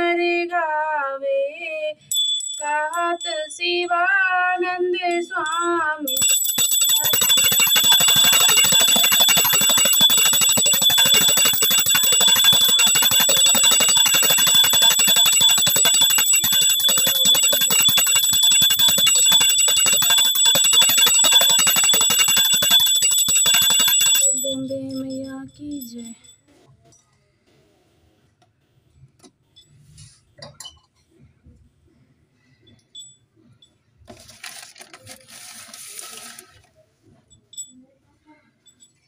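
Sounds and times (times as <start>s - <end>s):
hand bell ringing rapidly: 5.4s - 26.1s.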